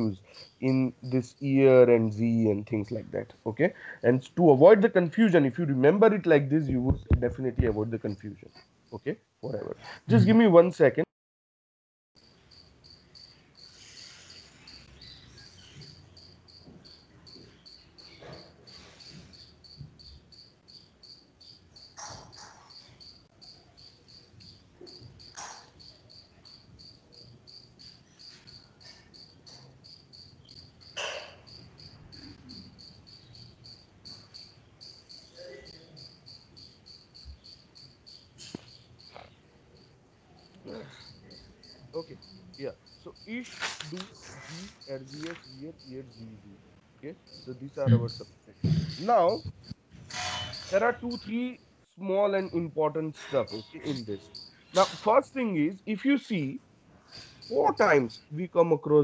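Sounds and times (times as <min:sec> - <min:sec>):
cricket chirping: 0:00.0 - 0:10.8, 0:12.2 - 0:59.0
soft knocks and rustles: 0:06.6 - 0:08.0, 0:48.6 - 0:50.1.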